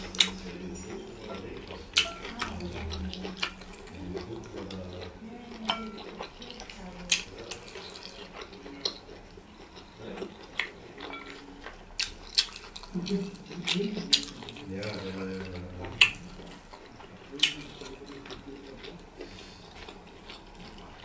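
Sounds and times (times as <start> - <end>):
wet squishing of food: 0.0 - 21.0.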